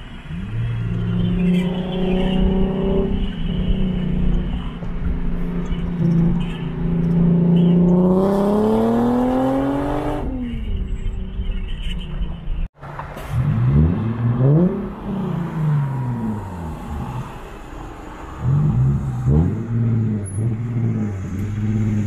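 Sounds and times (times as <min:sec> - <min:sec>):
engine revving: 0:07.0 - 0:10.3.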